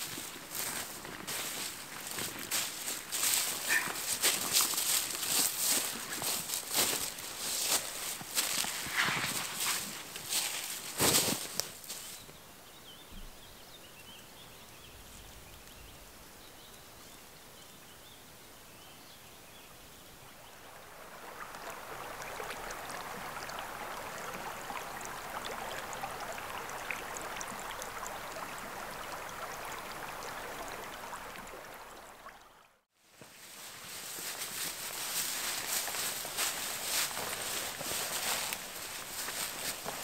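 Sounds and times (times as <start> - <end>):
river water rushing: 20.6 - 32.4.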